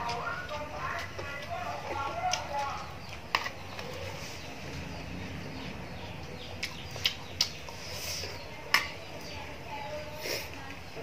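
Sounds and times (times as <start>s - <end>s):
low background noise: 0.0s - 11.0s
mouth smacks and clicks: 6.6s - 7.6s.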